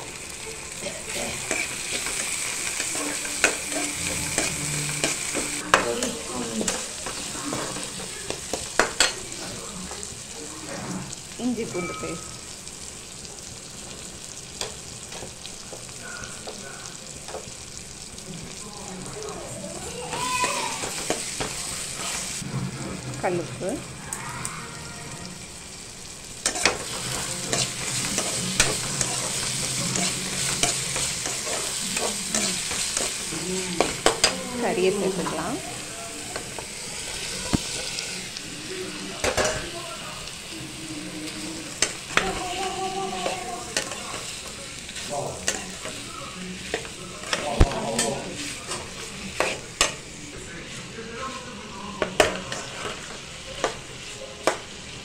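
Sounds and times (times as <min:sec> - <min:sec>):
vegetables sizzling in oil: 0:00.0 - 0:55.0
metal spatula scraping pan: 0:01.1 - 0:08.0, 0:26.4 - 0:35.5, 0:46.8 - 0:50.0.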